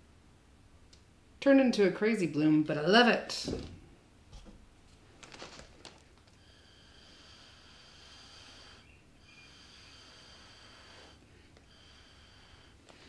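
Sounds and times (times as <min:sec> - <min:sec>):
breath blown through a straw: 0:06.4 - 0:13.0.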